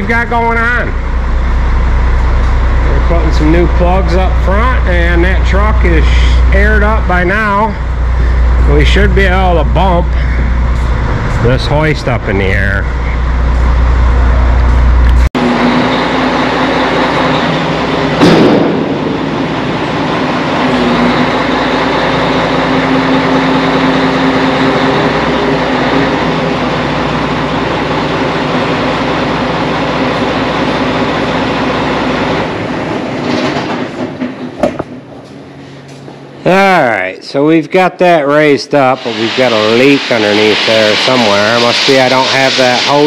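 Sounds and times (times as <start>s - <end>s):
hydraulic hoist mechanical drone: 0.0s - 36.8s, 38.7s - 43.0s
mechanical knock: 33.3s - 35.0s.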